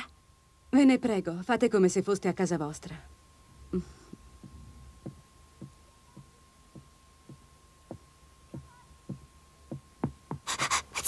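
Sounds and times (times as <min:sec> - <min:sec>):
faint steady high tone: 0:00.0 - 0:10.1
footsteps on wooden stairs: 0:04.1 - 0:10.5.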